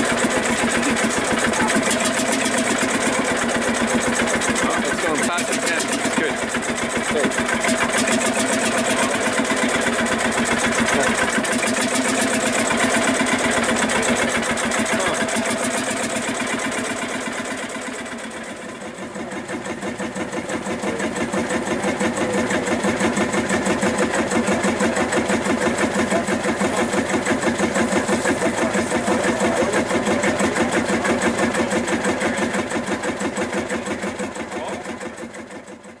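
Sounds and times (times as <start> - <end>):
tractor diesel engine idling: 0.0 - 36.0.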